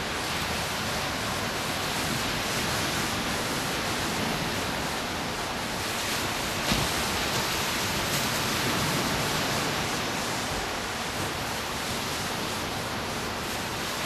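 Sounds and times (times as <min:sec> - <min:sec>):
small waves breaking on beach: 0:00.0 - 0:14.0.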